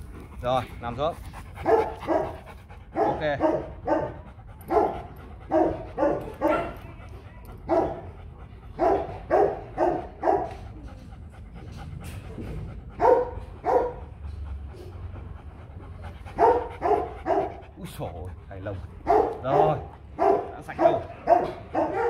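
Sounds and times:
dog barking: 1.6 - 2.4, 3.0 - 6.8, 7.7 - 8.1, 8.8 - 10.6, 13.0 - 14.1, 16.4 - 17.6, 19.0 - 22.0.

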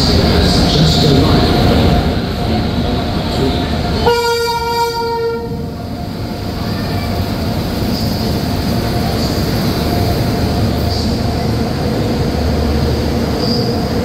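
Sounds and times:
train rumbling on rails: 0.0 - 14.0
locomotive horn blast: 4.0 - 5.7.

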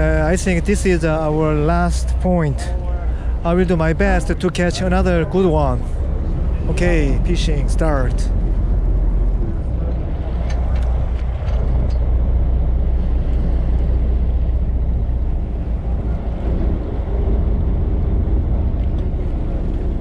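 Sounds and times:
low rumble: 0.0 - 20.0
water washing along hull: 0.0 - 20.0.

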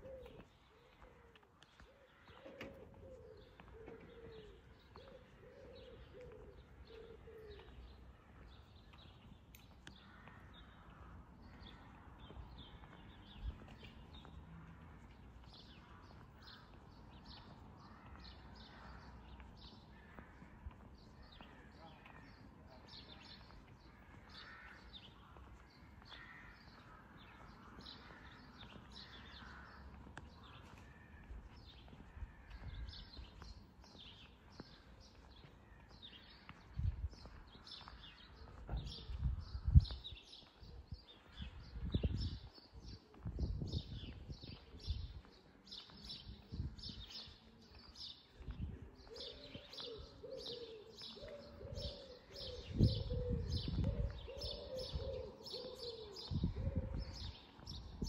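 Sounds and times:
small songbirds chirping: 0.0 - 58.0
pigeon cooing: 2.4 - 7.7, 49.0 - 57.1.

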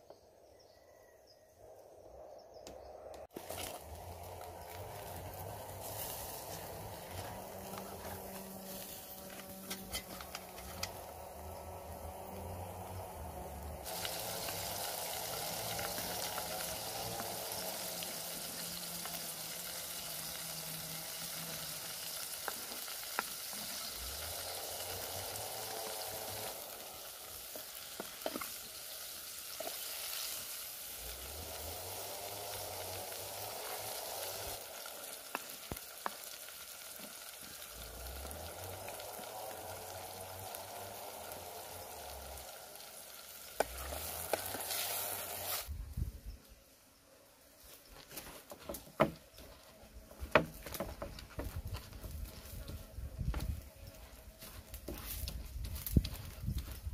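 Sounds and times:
octopus sizzling on hot stone: 3.4 - 45.7.

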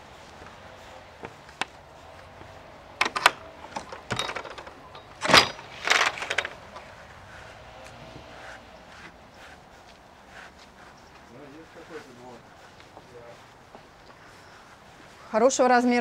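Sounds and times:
door latch and lock rattling: 3.0 - 6.9.

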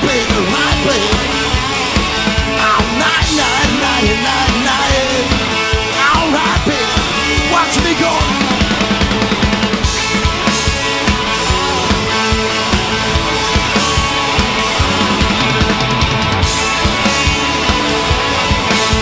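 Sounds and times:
drums steady beat: 0.0 - 19.0
electric guitar lead lines: 0.0 - 19.0
rock band playing: 0.0 - 19.0.

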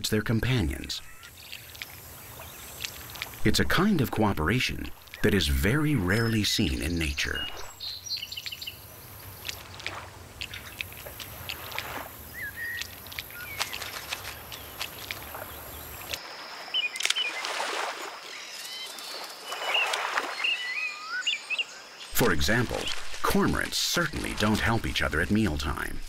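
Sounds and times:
water splashes: 0.0 - 21.2, 22.0 - 26.0
bird chirps: 5.0 - 9.6, 12.2 - 17.6, 18.2 - 23.0.

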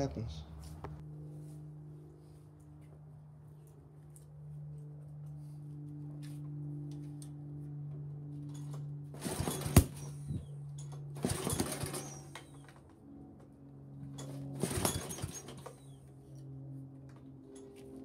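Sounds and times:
mower recoil starter whirring: 8.6 - 12.8, 14.2 - 15.9.

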